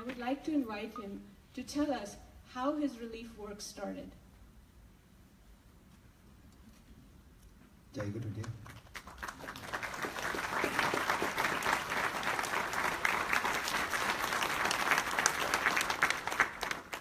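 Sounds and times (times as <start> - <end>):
audience applauding: 8.1 - 17.0.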